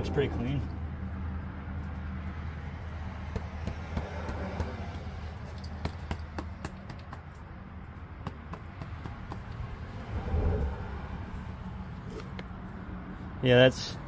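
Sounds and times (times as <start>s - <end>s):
steady low hum: 7.2s - 13.4s.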